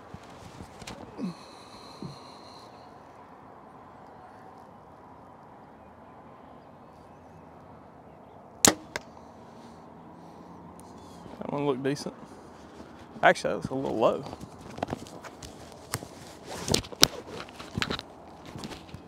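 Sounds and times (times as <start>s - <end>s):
bow creaking: 0.0s - 2.7s
outdoor background noise: 0.0s - 19.0s.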